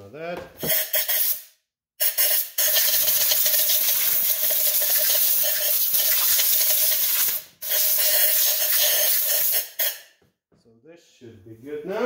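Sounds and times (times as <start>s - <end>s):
air blow gun hissing: 0.6s - 1.4s, 2.0s - 10.0s.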